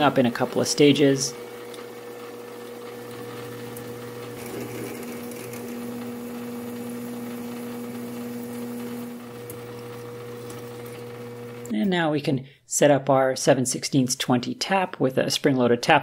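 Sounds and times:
metal lathe drilling hum: 0.0 - 11.7.

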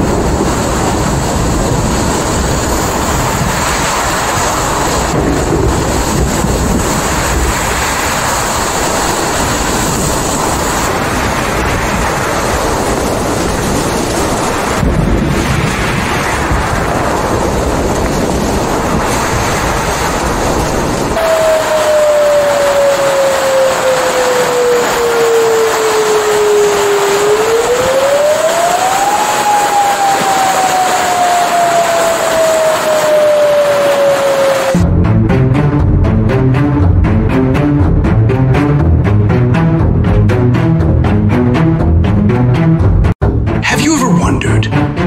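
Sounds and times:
rushing water: 0.0 - 34.8
wind buffeting microphone: 0.0 - 36.3
falling tone: 21.2 - 45.0.

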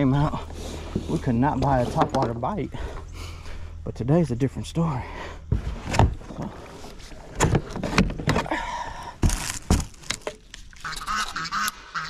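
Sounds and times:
kayak scraping: 0.0 - 3.8, 5.1 - 10.9.

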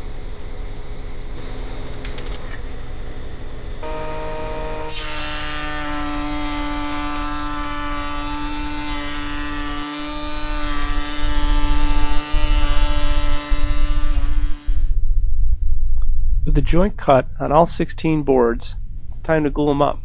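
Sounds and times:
router whining and cutting wood: 3.8 - 15.0
deep rumble: 13.6 - 19.4.

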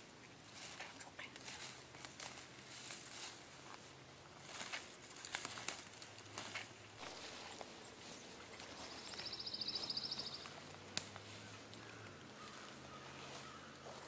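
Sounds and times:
footsteps crunching through dry leaves: 0.4 - 14.0
bird trilling: 9.0 - 10.6.

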